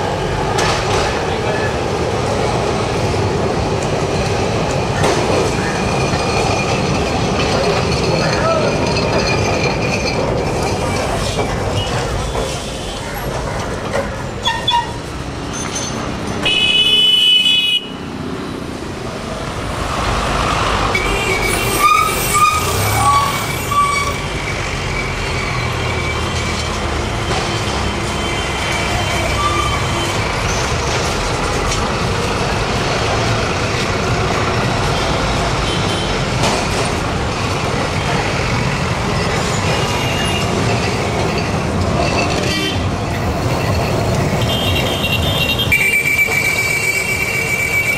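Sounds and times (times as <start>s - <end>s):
street traffic: 0.0s - 47.9s
vehicle horn blasts: 16.4s - 18.0s, 44.4s - 47.9s.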